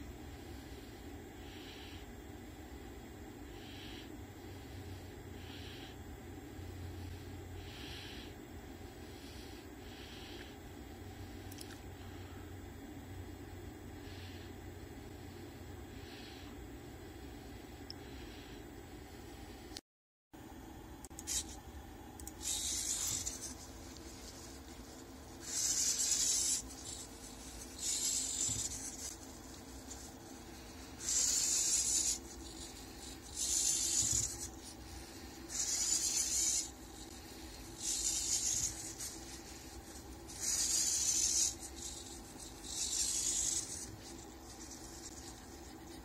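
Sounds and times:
steady low hum: 0:00.0 - 0:19.8, 0:20.4 - 0:46.0
marker scratching on paper: 0:07.1 - 0:08.3, 0:21.1 - 0:21.6, 0:22.2 - 0:46.0.

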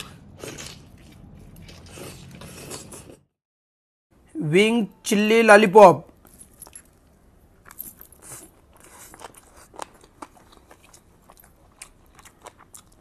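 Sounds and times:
chewing and crunching food: 0:00.0 - 0:03.2, 0:06.2 - 0:13.0.

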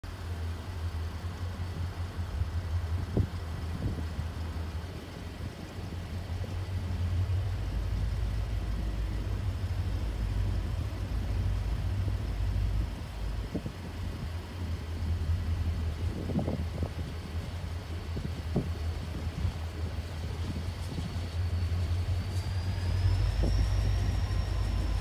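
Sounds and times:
distant locomotive engine rumble: 0:00.0 - 0:25.0.

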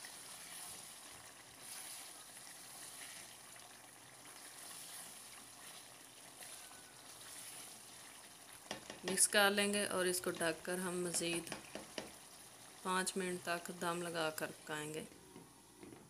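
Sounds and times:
curry sizzling in a pan: 0:00.0 - 0:15.8
spatula stirring: 0:04.3 - 0:09.2.

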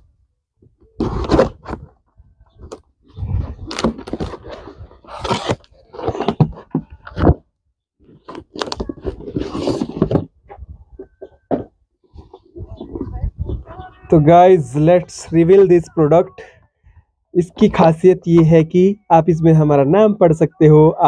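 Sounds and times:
cardboard scraping and crinkling: 0:01.0 - 0:02.0, 0:02.6 - 0:07.4, 0:08.0 - 0:10.4.

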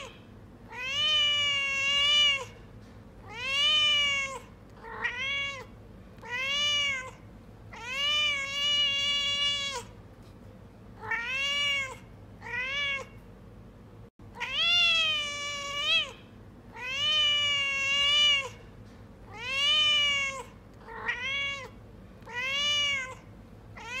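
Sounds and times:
cat meowing: 0:00.0 - 0:02.6, 0:03.2 - 0:09.9, 0:11.0 - 0:13.2, 0:14.3 - 0:18.6, 0:19.3 - 0:24.0.

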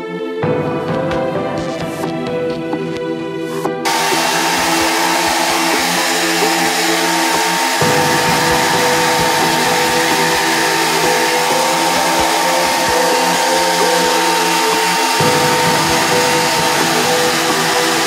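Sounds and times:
hair dryer whirring: 0:03.9 - 0:18.0.

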